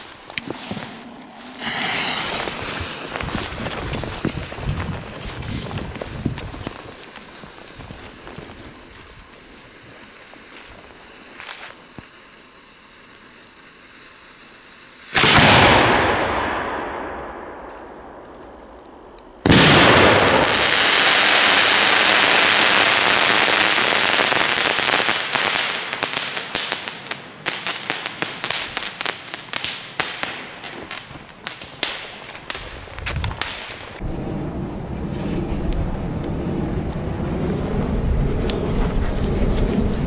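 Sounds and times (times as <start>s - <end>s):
firework mortar launch bang: 0.0s - 8.8s, 15.1s - 26.0s
crackling firework stars: 0.0s - 40.0s.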